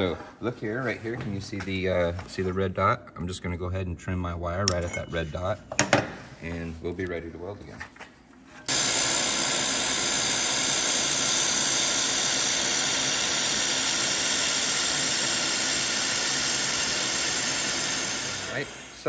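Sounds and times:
laser welder hiss: 0:08.7 - 0:19.0.

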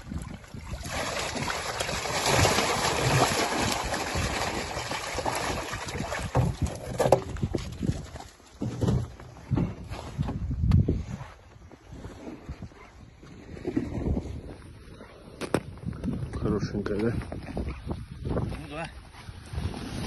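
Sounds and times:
water pouring and splashing: 0:00.0 - 0:09.0
wind buffeting microphone: 0:09.3 - 0:20.0.

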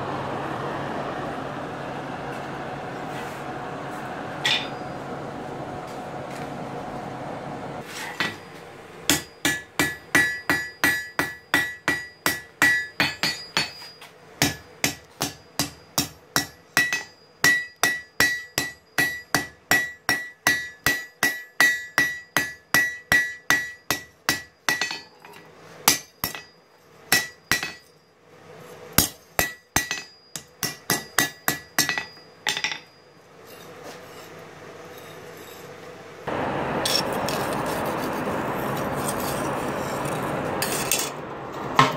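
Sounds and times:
hammer ringing on anvil: 0:04.4 - 0:05.0, 0:08.2 - 0:28.1, 0:29.0 - 0:34.3.

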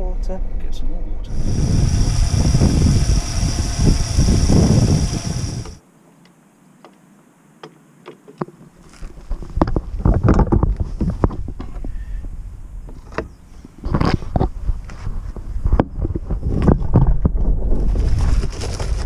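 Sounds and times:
water rushing through a hose: 0:01.3 - 0:05.8.

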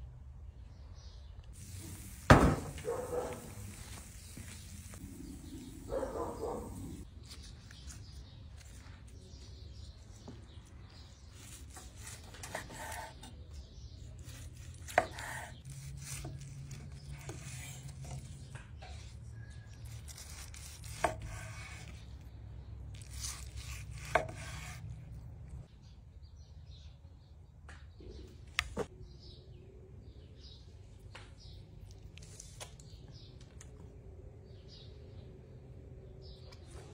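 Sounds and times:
knife cutting on wooden board: 0:11.3 - 0:13.4, 0:14.2 - 0:18.4, 0:19.8 - 0:22.0, 0:23.0 - 0:25.0.

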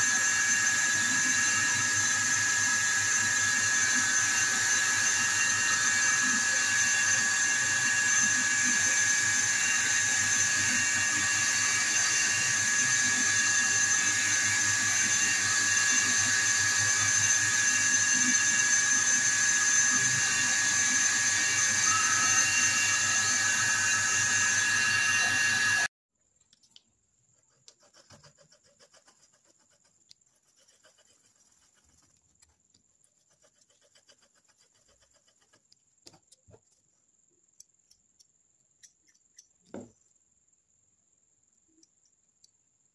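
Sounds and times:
lathe whining: 0:00.0 - 0:25.9.

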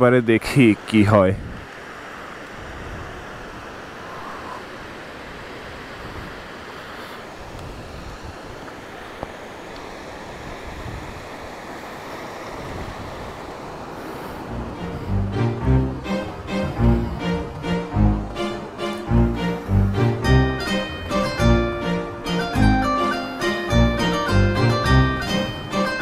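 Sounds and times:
small waves washing on sand: 0:00.0 - 0:20.1
wind buffeting microphone: 0:01.2 - 0:01.8, 0:02.5 - 0:09.0, 0:10.2 - 0:11.8, 0:12.4 - 0:22.7, 0:23.7 - 0:26.0.

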